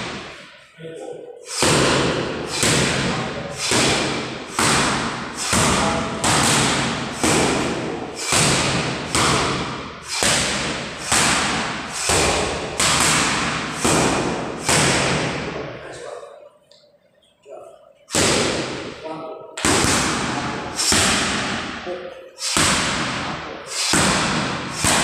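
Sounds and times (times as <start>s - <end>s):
boxing gloves smacking mitts: 1.5s - 15.5s, 18.1s - 18.9s, 19.6s - 21.8s, 22.4s - 25.0s.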